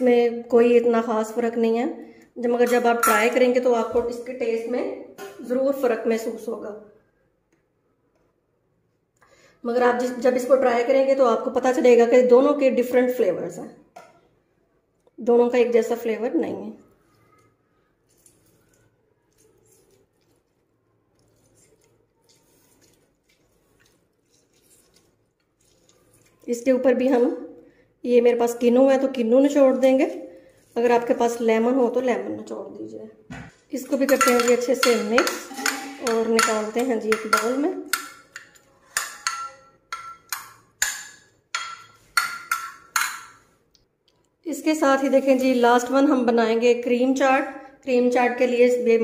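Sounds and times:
spoon clinking against glass dish: 34.0 - 43.4.

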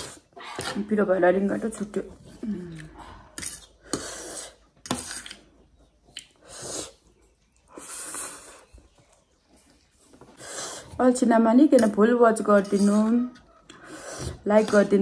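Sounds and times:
slurping noodles: 3.8 - 5.3, 6.2 - 7.1, 7.7 - 8.8, 12.7 - 15.0.

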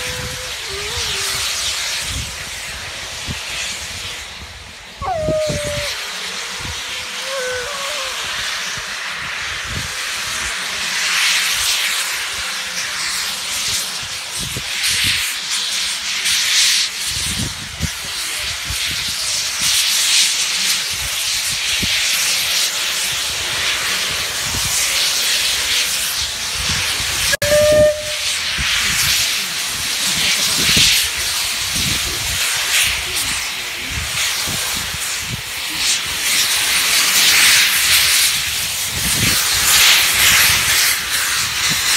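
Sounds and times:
steam locomotive hissing steam: 0.0 - 41.9
steam whistle blast: 27.2 - 29.2.

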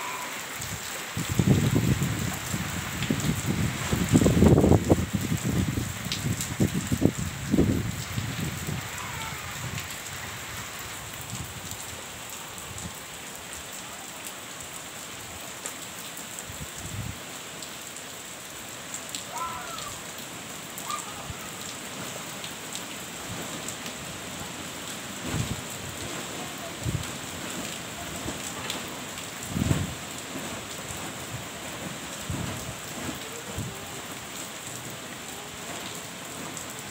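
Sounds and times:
heavy rain falling: 0.0 - 36.9
wind gusts on microphone: 0.6 - 12.0, 25.2 - 26.1, 29.4 - 30.0, 32.2 - 33.7.

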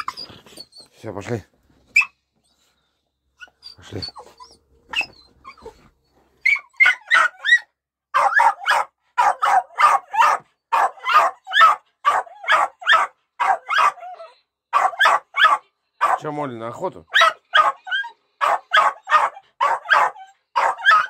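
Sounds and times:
small dog barking: 6.8 - 16.2, 17.1 - 21.0.

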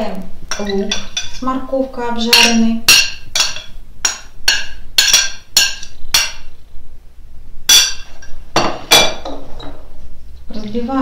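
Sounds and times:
ceramic plate clinking on bowl: 2.3 - 6.5.

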